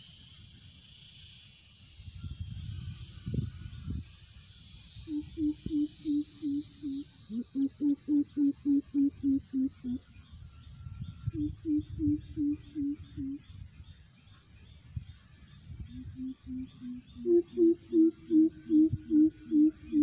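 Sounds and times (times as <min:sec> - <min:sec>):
bird calling deep boop notes: 0:05.1 - 0:10.0, 0:11.4 - 0:13.4, 0:15.9 - 0:20.0.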